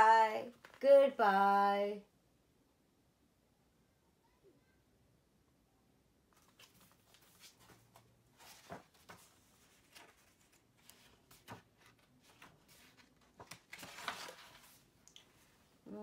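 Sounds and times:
paper pages rustling: 0:00.5 - 0:00.8, 0:06.3 - 0:15.6
page turning swish: 0:06.4 - 0:14.8.

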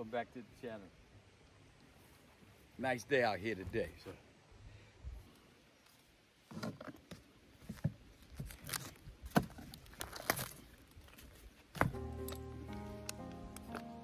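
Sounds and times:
plastic film crinkling and tearing: 0:08.4 - 0:09.0, 0:09.6 - 0:11.2
background music: 0:11.8 - 0:14.0.

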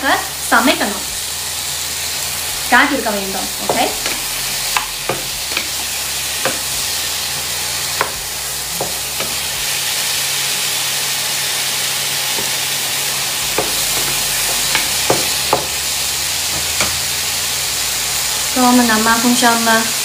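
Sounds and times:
tomatoes sizzling in a pan: 0:00.0 - 0:20.0
wooden spatula knocking on pan: 0:03.6 - 0:06.7, 0:08.0 - 0:09.5, 0:13.6 - 0:15.8.

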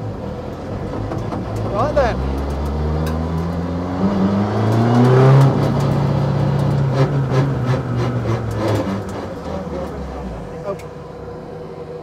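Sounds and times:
race car engine revving: 0:00.0 - 0:12.0
sharp clicks and clunks: 0:00.5 - 0:03.6, 0:04.6 - 0:10.0.

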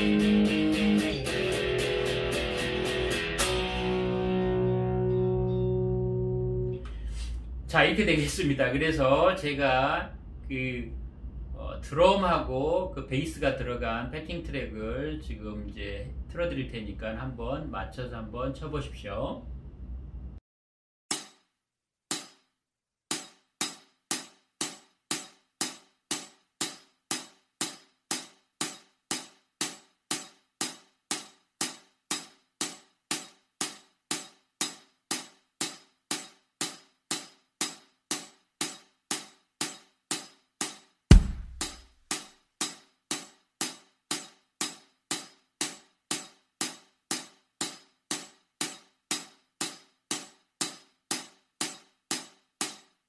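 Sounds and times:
loud low thump: 0:41.1 - 0:41.8.

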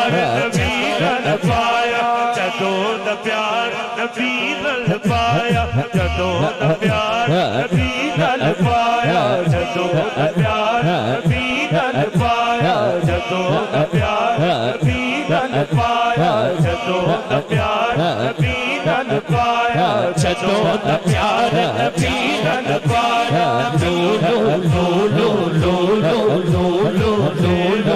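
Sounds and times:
group chanting: 0:00.0 - 0:04.9, 0:06.4 - 0:27.9
person reciting: 0:00.0 - 0:27.9.

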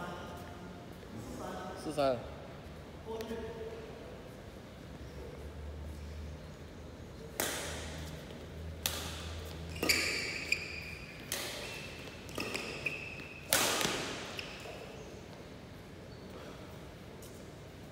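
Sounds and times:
rackets striking shuttlecock: 0:07.3 - 0:08.2, 0:08.8 - 0:15.0
shoes squeaking on court: 0:09.1 - 0:16.4.

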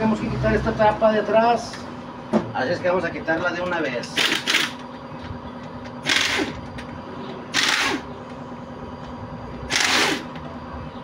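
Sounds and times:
air impact wrench bursts: 0:04.2 - 0:04.8, 0:06.0 - 0:06.6, 0:07.5 - 0:08.1, 0:09.7 - 0:10.4.

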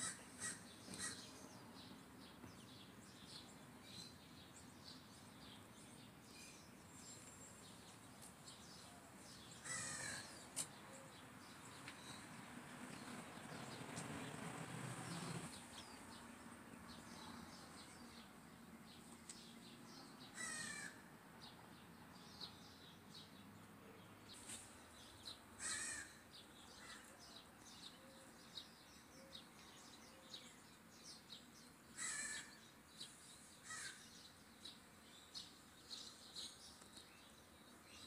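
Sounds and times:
short loud bird calls: 0:00.0 - 0:01.3, 0:08.8 - 0:11.1, 0:20.3 - 0:21.0, 0:25.6 - 0:27.2, 0:31.9 - 0:32.6, 0:33.6 - 0:34.1.

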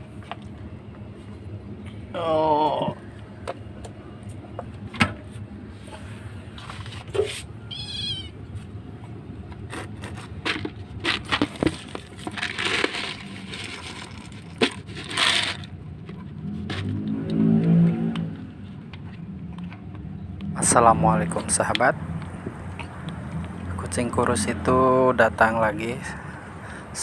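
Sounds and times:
cat meowing: 0:07.6 - 0:08.4
cat crunching dry kibble: 0:09.6 - 0:15.8.

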